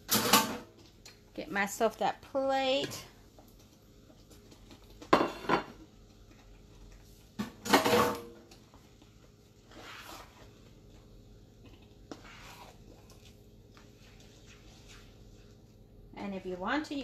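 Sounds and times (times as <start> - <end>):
plate clattering on counter: 5.1 - 5.8.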